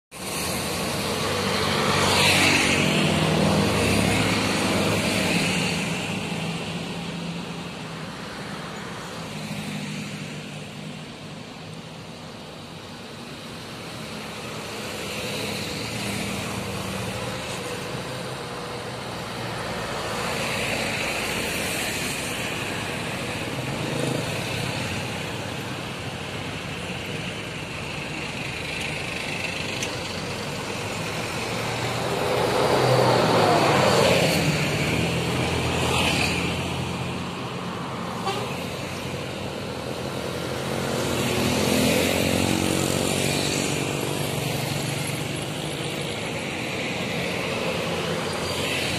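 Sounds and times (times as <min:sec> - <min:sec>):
road traffic passing: 0:00.1 - 0:48.9
vehicle horn: 0:38.2 - 0:38.6.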